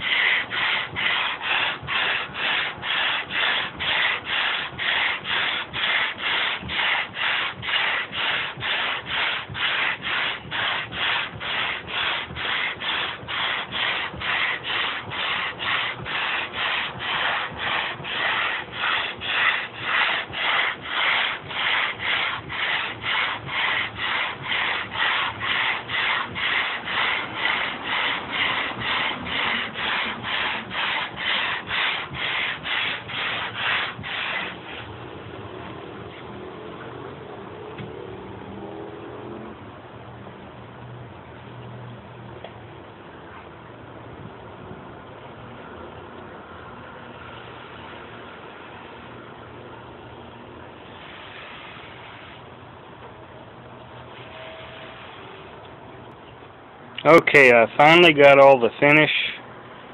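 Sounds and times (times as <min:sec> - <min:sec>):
sandpaper rubbing on wood: 0:00.0 - 0:34.9.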